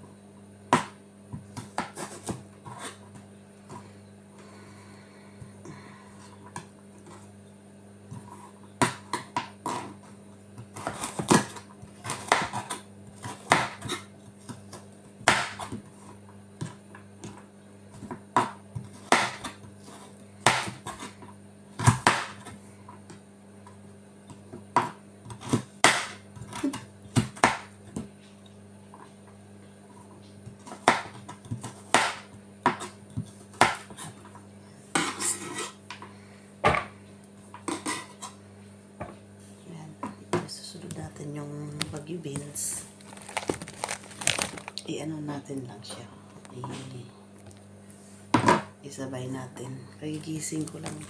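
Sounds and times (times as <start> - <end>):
knife chopping on cutting board: 0.7 - 3.0, 8.1 - 10.0, 10.6 - 15.9, 18.0 - 21.2, 21.8 - 22.5, 24.7 - 28.1, 30.6 - 34.2.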